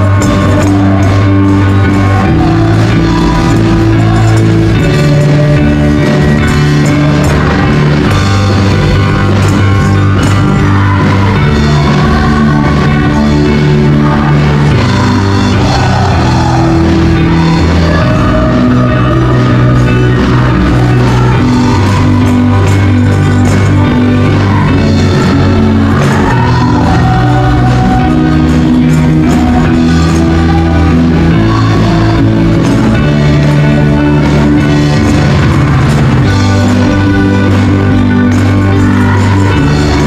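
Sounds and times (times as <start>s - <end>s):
group of voices singing: 0.0s - 40.0s
worship band music: 0.0s - 40.0s.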